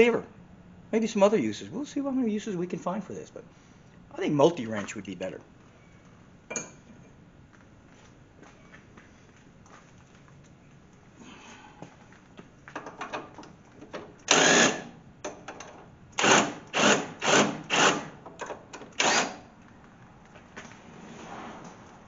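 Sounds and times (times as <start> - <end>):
power tool driving bolts: 14.2 - 19.5
clicks and rattles of tool handling: 15.2 - 15.9, 18.2 - 19.1.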